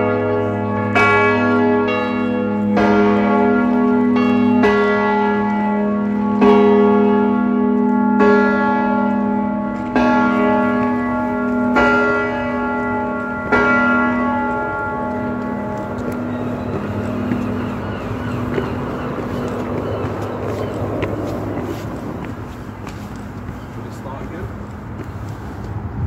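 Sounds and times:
church bells tolling: 0.0s - 25.6s.

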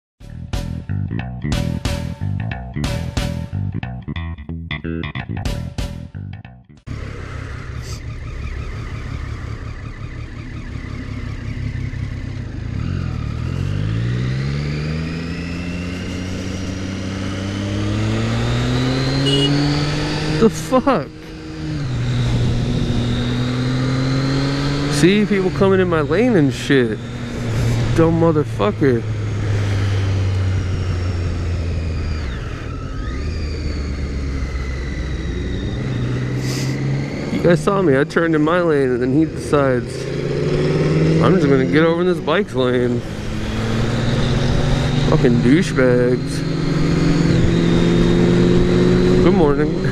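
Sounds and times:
motorcycle engine idling and accelerating: 0.2s - 49.9s
wind rush: 22.0s - 23.4s.

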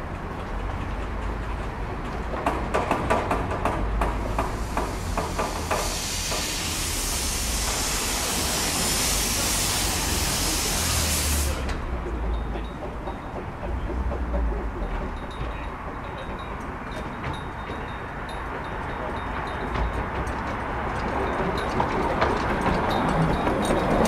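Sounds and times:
steam locomotive knocks and clanks: 0.1s - 24.0s
loud steam hiss: 4.1s - 12.0s.

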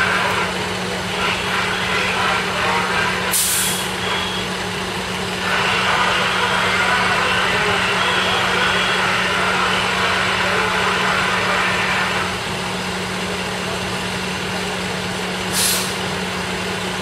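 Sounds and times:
fire engines idling: 0.0s - 17.0s
short sharp hiss: 15.5s - 16.0s.

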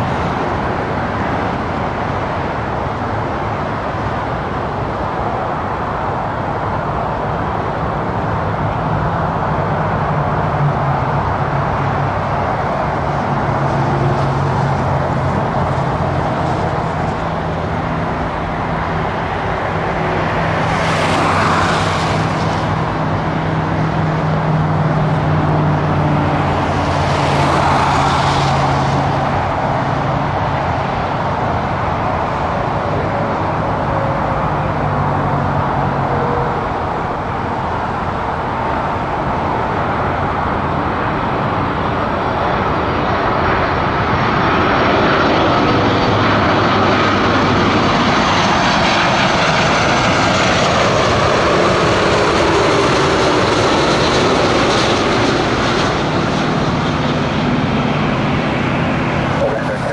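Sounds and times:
high fan whine: 0.0s - 59.9s
jet engines rushing: 0.0s - 59.9s.

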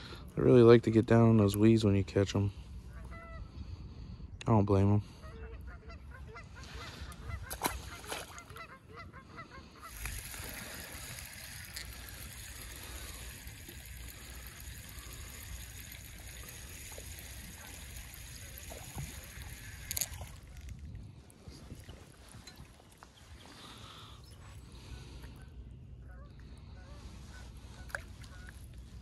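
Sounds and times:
geese honking: 5.2s - 11.0s, 24.8s - 28.7s
fish splashing into water: 7.5s - 8.6s, 9.8s - 20.8s.

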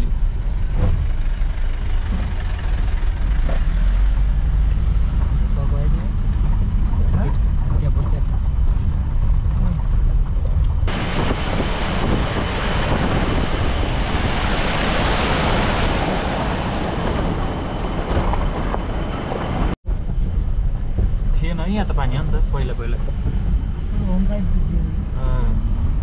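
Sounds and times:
off-road vehicle engine: 0.0s - 13.6s, 15.8s - 26.0s
road rumble: 0.0s - 26.0s
loud steady rushing hiss: 10.9s - 17.0s.

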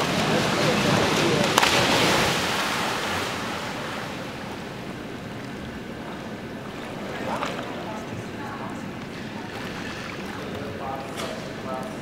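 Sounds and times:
water splashing in pool: 0.0s - 4.6s
wash of moving water: 0.0s - 8.5s, 9.1s - 10.9s.

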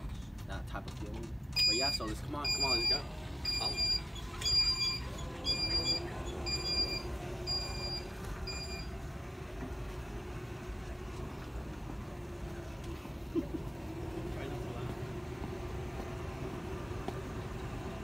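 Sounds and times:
short high beeps: 1.6s - 8.9s
shopping cart rolling and rattling: 2.6s - 8.9s.

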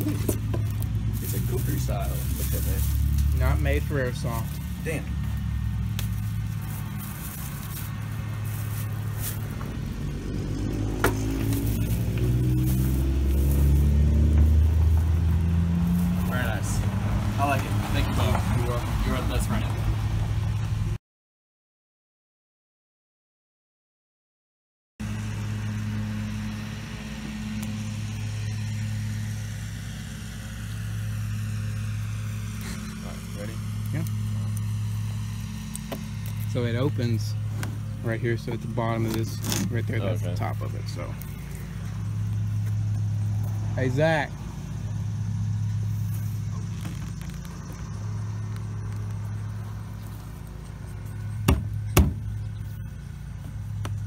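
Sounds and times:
low droning hum: 0.0s - 17.3s, 25.0s - 54.0s
machete drawn from sheath: 39.3s - 39.8s.

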